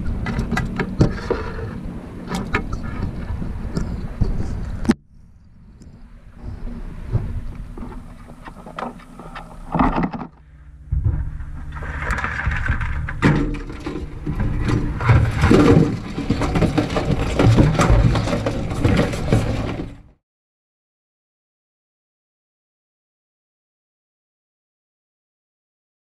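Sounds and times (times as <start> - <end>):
low rumble of handling: 0.0 - 20.2.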